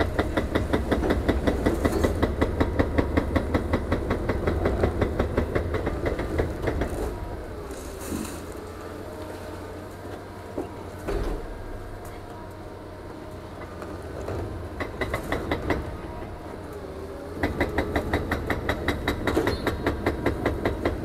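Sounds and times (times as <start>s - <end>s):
hydraulic breaker hammering concrete: 0.0s - 6.9s, 14.7s - 16.1s, 17.4s - 21.0s
excavator engine hum: 0.0s - 21.0s.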